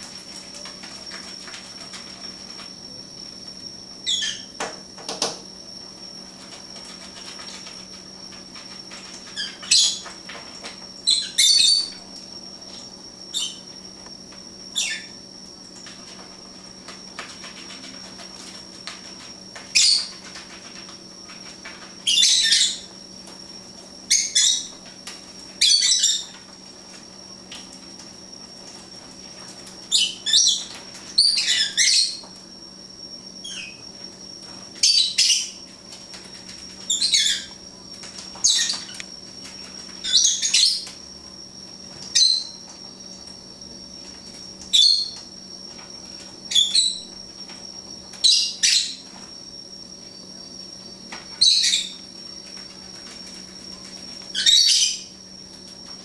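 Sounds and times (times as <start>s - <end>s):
wings fluttering: 0.0s - 32.4s, 51.1s - 56.0s
birds chirping: 4.0s - 4.6s, 14.7s - 15.2s, 19.7s - 20.4s.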